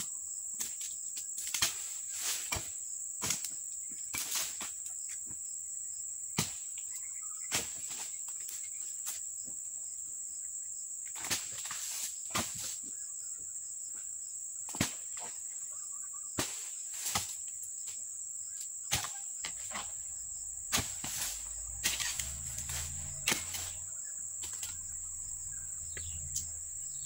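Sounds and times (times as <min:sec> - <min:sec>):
high-pitched insect drone: 0:19.5 - 0:27.0
low rumble: 0:19.5 - 0:27.0.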